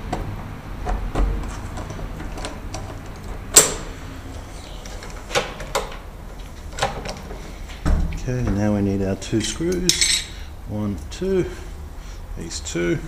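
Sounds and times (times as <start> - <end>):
metal door lock clicking: 2.2 - 3.9.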